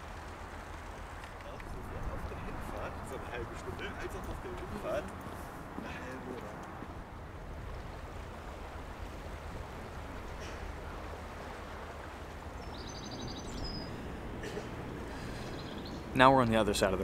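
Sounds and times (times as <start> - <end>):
high bird chirps: 12.6 - 14.0.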